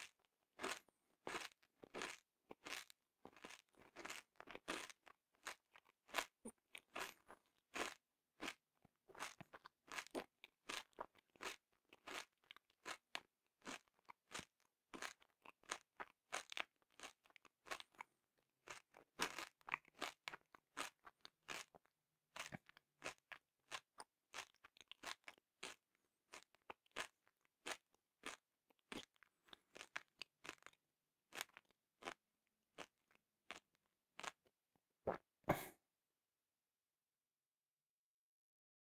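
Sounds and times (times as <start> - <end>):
candy crunching while chewed: 0.0 - 34.5.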